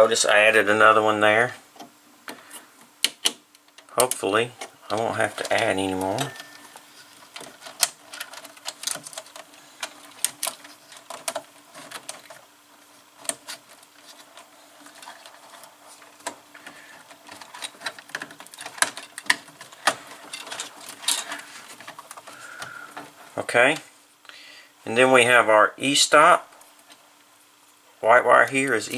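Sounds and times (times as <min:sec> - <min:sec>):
faint steady hum: 0:00.0 - 0:28.9
clicks and rattles of wires: 0:01.8 - 0:23.8.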